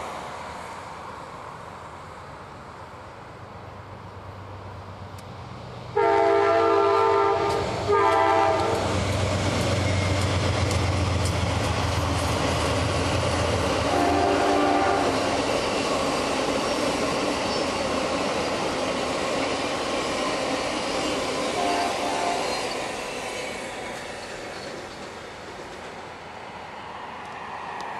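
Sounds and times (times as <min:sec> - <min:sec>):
locomotive air horn: 0:05.9 - 0:08.9, 0:13.9 - 0:15.3, 0:21.6 - 0:22.6
train wheels clickety-clack: 0:06.9 - 0:26.2.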